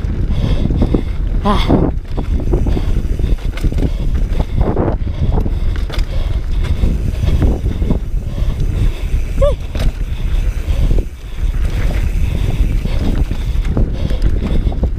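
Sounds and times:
constant low rumble: 0.0s - 14.9s
wind buffeting microphone: 0.0s - 14.9s
bike rattling knocks: 9.1s - 14.8s.

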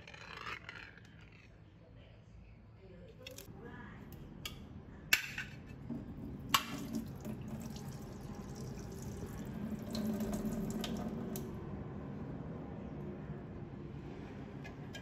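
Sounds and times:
liquid splashing into a metal sink: 6.4s - 11.5s.

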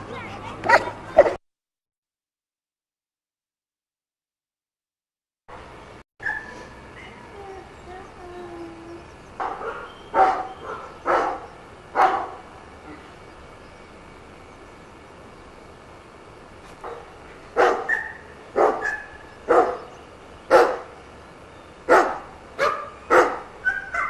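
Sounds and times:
dog barking: 0.6s - 1.4s, 6.2s - 6.6s, 9.4s - 12.4s, 17.6s - 19.9s, 20.5s - 20.9s, 21.9s - 24.0s.

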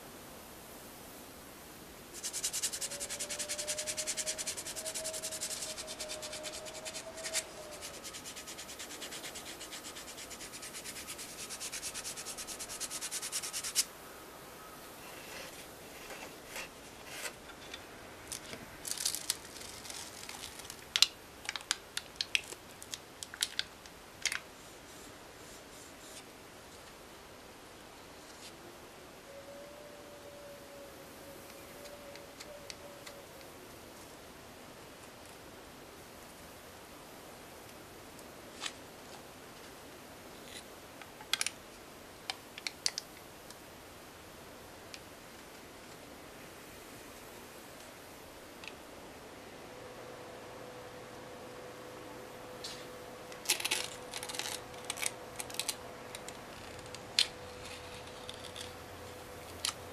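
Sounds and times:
sandpaper rasping on plastic: 2.2s - 13.9s.

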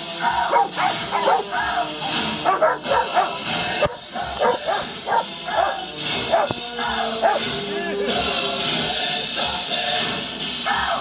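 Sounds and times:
dogs barking and yipping: 0.0s - 7.6s
background music: 0.0s - 11.0s.

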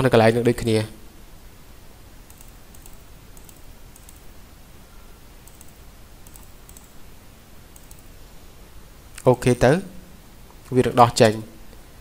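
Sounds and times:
low hiss of room noise: 0.0s - 12.0s
computer mouse clicks: 2.3s - 4.3s, 5.4s - 7.0s, 7.7s - 8.1s.

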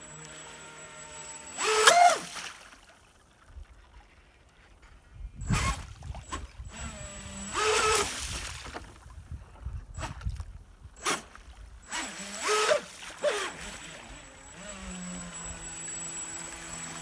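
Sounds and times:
model boat motor whine: 0.0s - 2.3s, 5.4s - 8.2s, 11.8s - 17.0s.

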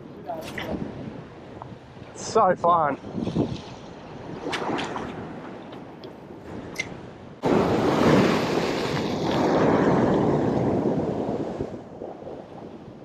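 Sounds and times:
wind on microphone: 0.0s - 13.0s
ocean surf washing over rocks: 4.1s - 13.0s.

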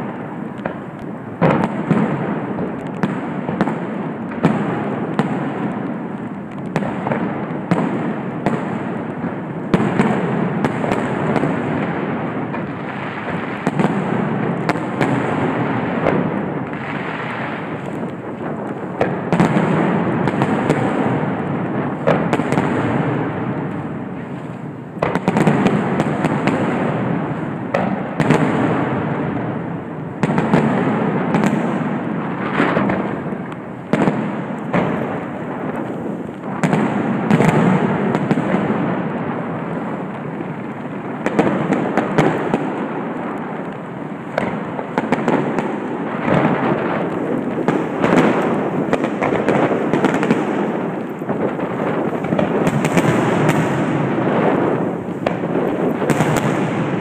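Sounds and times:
rumble of explosions: 0.0s - 57.0s
firework shells bursting: 30.2s - 57.0s.

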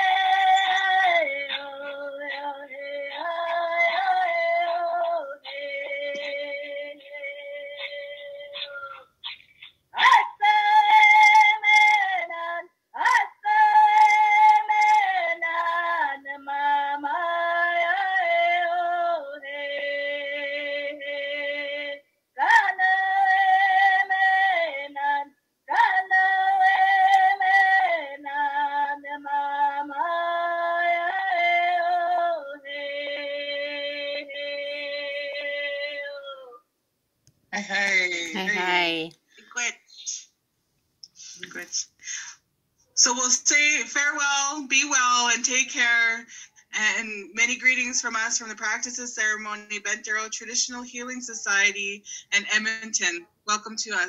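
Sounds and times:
woman singing unaccompanied: 0.0s - 9.1s, 10.0s - 36.6s, 38.4s - 39.1s.

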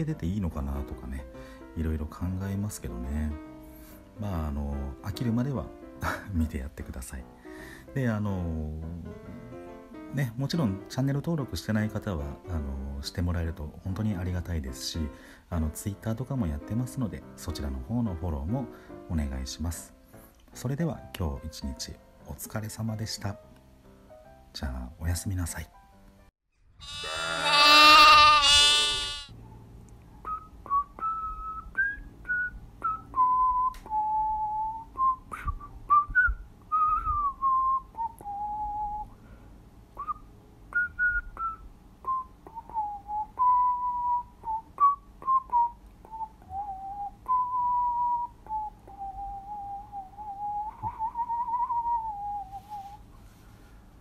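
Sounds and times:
wavering bright tone: 26.8s - 29.3s
person whistling slow tune: 30.2s - 39.2s, 40.0s - 53.1s.

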